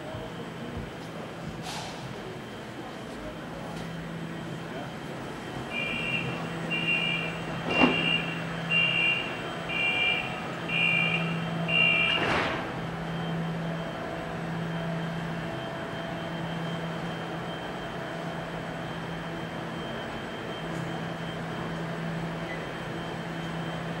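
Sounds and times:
two-tone electronic beeps: 5.7 - 12.3.

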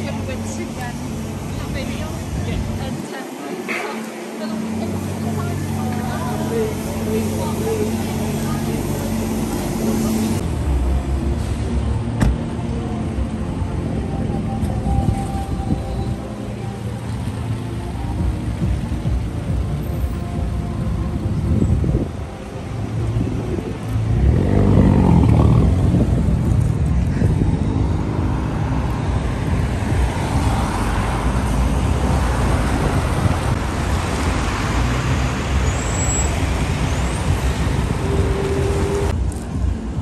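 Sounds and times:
vehicle tyre noise passing: 14.4 - 40.0.

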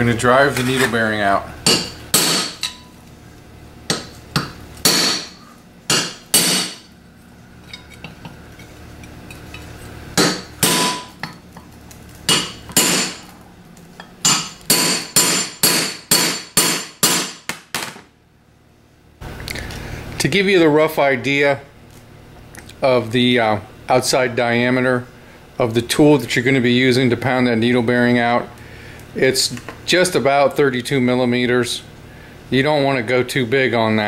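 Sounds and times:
hammer striking metal: 1.7 - 2.9, 3.9 - 6.9, 10.2 - 11.4, 12.3 - 13.3, 14.2 - 17.9.

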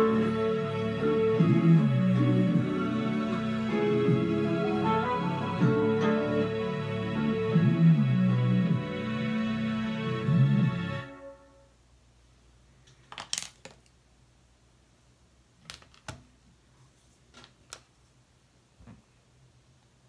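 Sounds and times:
song playing: 0.0 - 11.7.

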